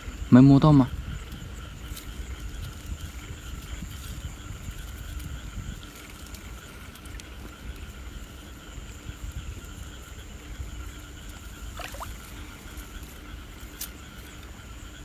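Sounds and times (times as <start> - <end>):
frogs and insects chorus: 0.0 - 15.0
muddy water sloshing: 11.6 - 12.9.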